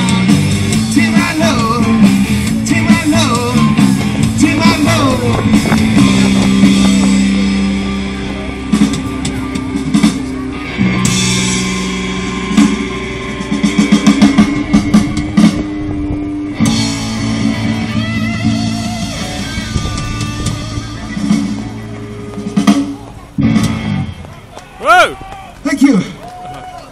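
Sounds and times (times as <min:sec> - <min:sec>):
rock band playing: 0:00.0 - 0:25.2
rapid drum hits: 0:00.2 - 0:07.9.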